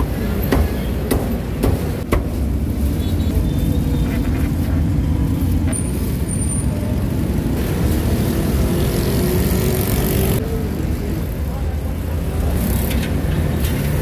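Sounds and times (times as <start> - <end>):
passing motorbikes and cars: 0.0 - 14.0.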